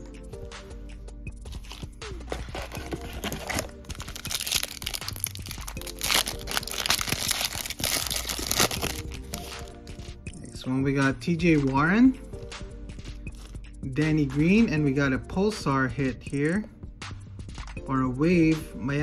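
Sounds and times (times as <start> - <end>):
background music: 0.0 - 19.0
foil wrapper crinkling: 1.5 - 9.6.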